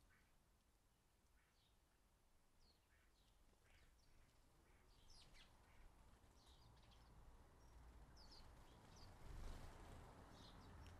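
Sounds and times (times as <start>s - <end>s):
sparrows chirping: 4.8s - 9.3s.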